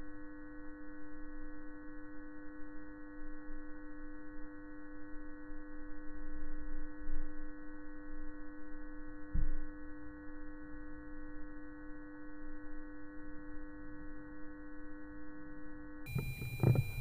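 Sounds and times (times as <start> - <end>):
drone of held tones: 0.0 - 17.0
dull low thump: 16.1 - 17.0.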